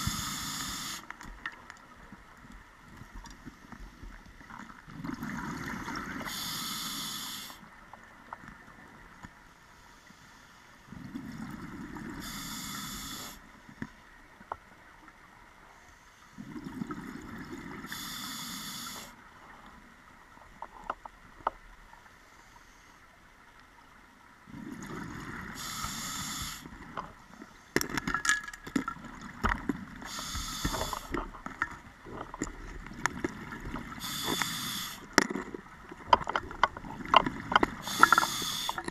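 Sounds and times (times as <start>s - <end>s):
diver breathing through regulator: 0.0s - 1.1s, 6.2s - 7.6s, 12.2s - 13.4s, 17.9s - 19.2s, 25.5s - 26.7s, 30.0s - 31.2s, 33.9s - 35.1s, 37.8s - 38.9s
exhaled bubbles rumbling: 4.6s - 6.3s, 24.5s - 25.6s.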